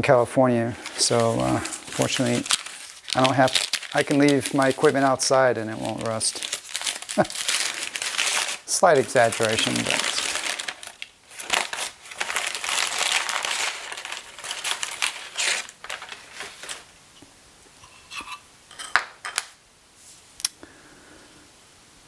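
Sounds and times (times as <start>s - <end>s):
wrapping paper crinkling: 0.8s - 16.9s.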